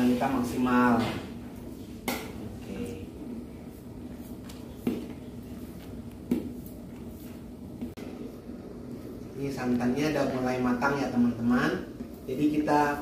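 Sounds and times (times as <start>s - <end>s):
low background hum: 0.0s - 13.0s.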